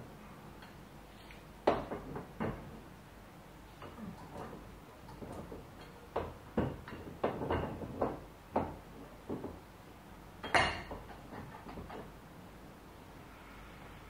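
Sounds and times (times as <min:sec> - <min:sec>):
metal clunks and knocks: 0:01.6 - 0:02.8, 0:03.8 - 0:09.6, 0:10.4 - 0:12.2.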